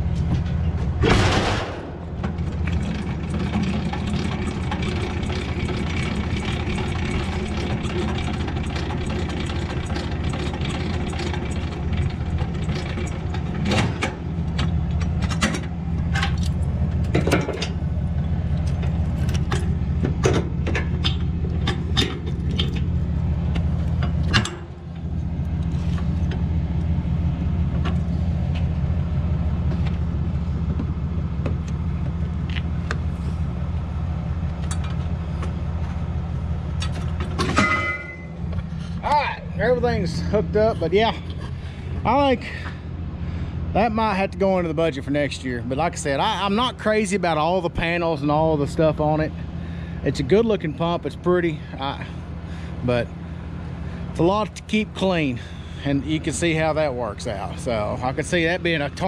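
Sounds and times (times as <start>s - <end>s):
truck engine idling: 0.0s - 59.0s
sharp metal clanks: 37.4s - 38.4s.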